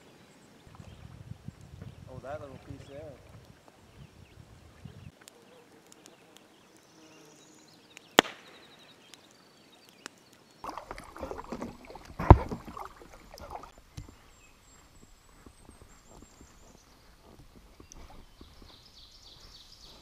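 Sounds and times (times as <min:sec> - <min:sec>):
gear knocking and rubbing on raft: 0:10.7 - 0:14.2.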